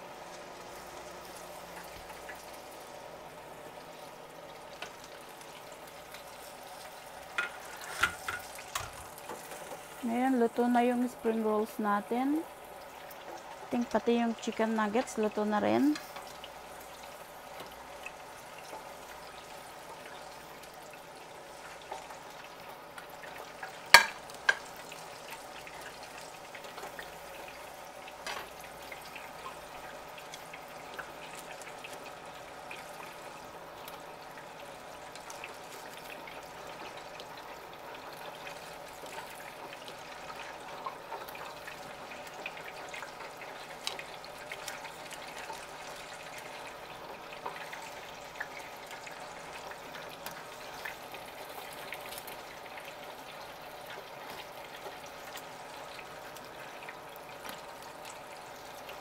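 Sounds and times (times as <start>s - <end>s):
hot oil sizzling in a fryer: 0.0s - 59.0s.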